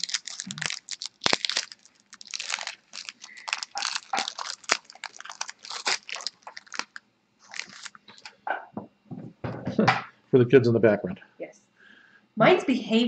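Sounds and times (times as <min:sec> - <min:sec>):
wrapper crinkling: 0:00.0 - 0:08.4.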